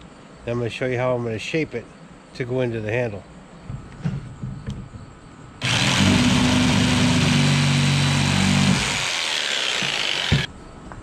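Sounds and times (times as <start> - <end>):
jigsaw sawing through wood: 5.6 - 10.5
saw stopping click: 8.6 - 10.5.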